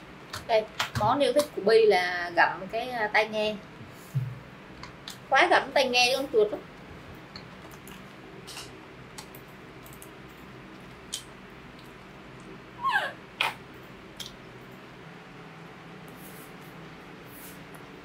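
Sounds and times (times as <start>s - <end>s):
low room hum: 0.0s - 18.0s
baby monkey squealing: 12.8s - 13.6s.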